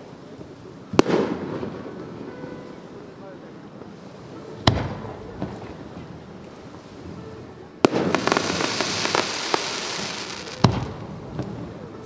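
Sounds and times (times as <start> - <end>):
firework shell bang: 7.9 - 11.0.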